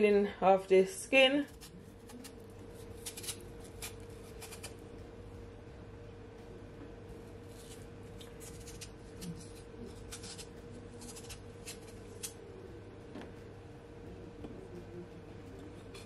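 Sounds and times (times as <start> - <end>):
faint steady hum: 0.0 - 16.0
knife scraping potato skin: 1.4 - 4.8, 7.4 - 12.4.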